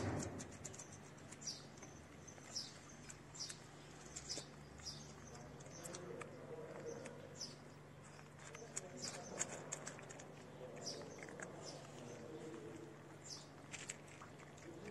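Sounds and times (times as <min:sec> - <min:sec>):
cats chewing dry kibble: 0:00.0 - 0:14.9
small bird chirping: 0:00.0 - 0:14.9.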